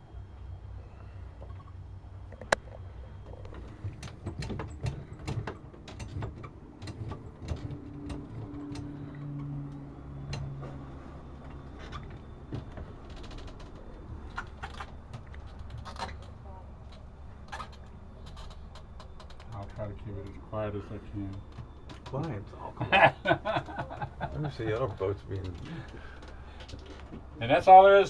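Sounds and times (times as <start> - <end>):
low steady hum: 0.0 - 28.0
clicks and knocks on boat: 2.3 - 10.8, 11.4 - 20.4.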